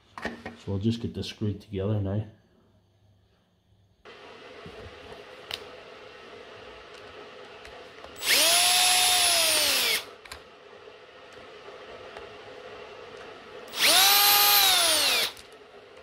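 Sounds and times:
power drill motor whine: 8.1s - 10.1s, 13.7s - 15.4s.

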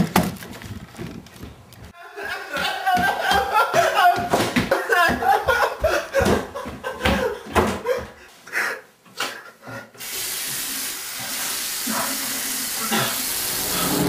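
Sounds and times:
water running into sink: 10.0s - 14.0s.

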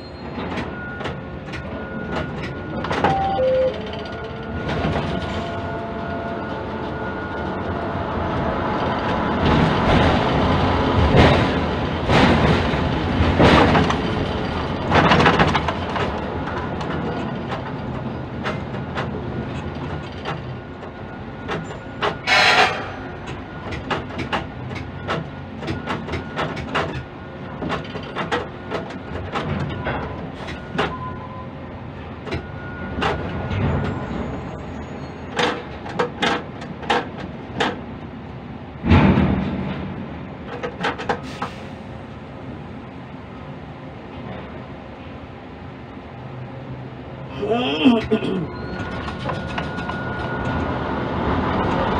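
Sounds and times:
crane machinery rumble: 0.0s - 51.9s.

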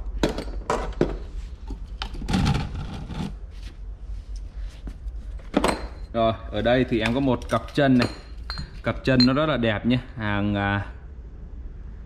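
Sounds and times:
hardware rubbing and scraping: 1.3s - 5.4s.

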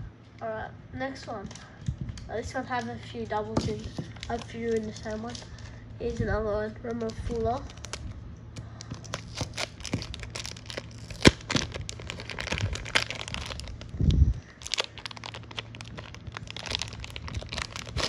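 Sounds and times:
plastic bag crinkling: 2.7s - 6.2s, 6.9s - 8.1s, 8.8s - 18.0s.

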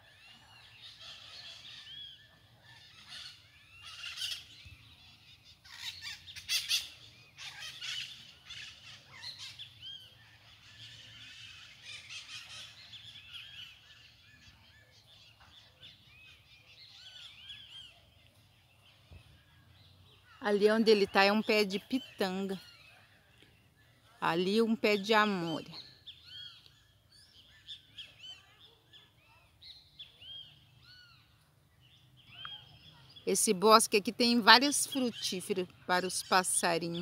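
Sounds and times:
birds chirping: 0.0s - 37.0s
harsh screechy bird calls: 0.7s - 14.6s.

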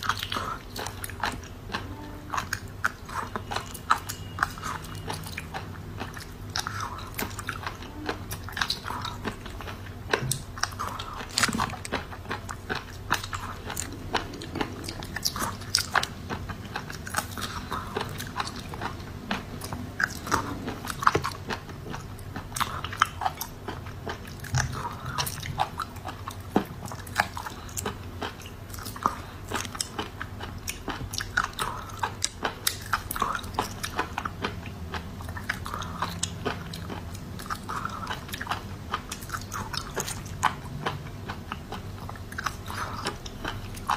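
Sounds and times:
wet chewing: 0.0s - 43.9s.

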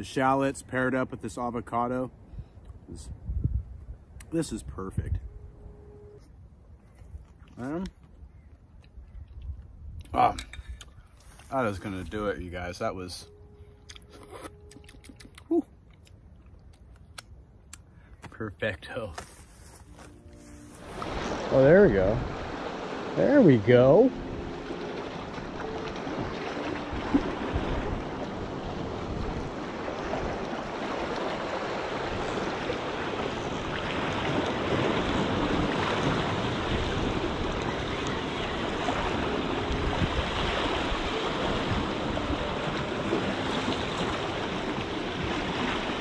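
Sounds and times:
wind buffeting microphone: 2.3s - 5.6s, 20.9s - 46.0s
seawater washing against rocks: 20.8s - 46.0s.

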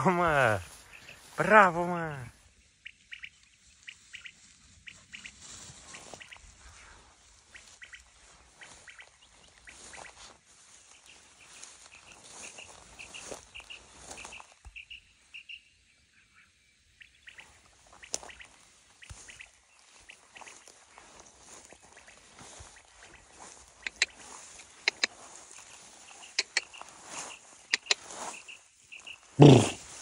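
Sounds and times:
footsteps rustling through grass: 0.1s - 15.5s, 17.0s - 30.0s
small birds chirping: 0.1s - 30.0s.

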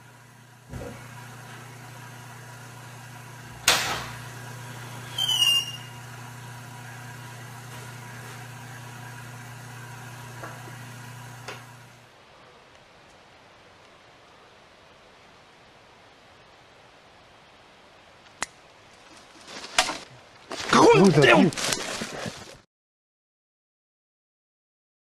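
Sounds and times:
low hum: 0.0s - 12.5s
door hinge squeak: 5.0s - 6.0s.

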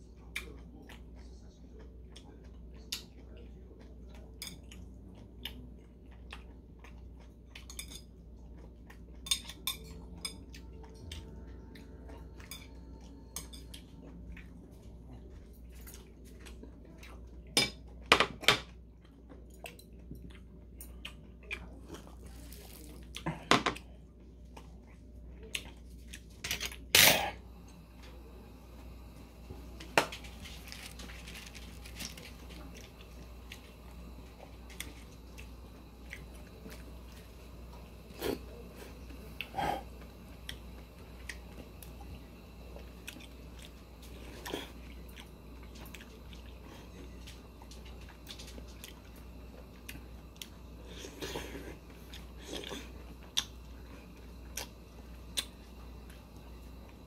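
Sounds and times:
low steady hum: 0.0s - 57.0s
chopsticks clinking on ceramic bowls: 9.2s - 10.6s.

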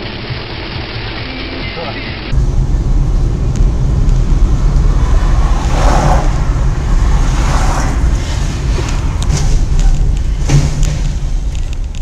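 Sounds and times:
vehicle rumbling: 0.0s - 12.0s
wind buffeting microphone: 2.4s - 12.0s.

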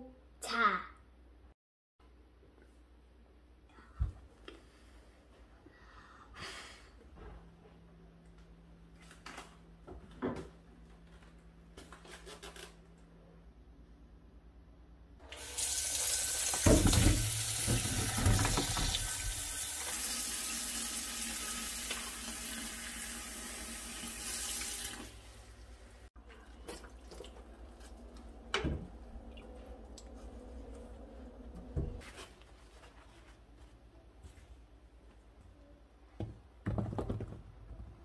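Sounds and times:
tap water running into steel bowl: 15.3s - 25.2s.

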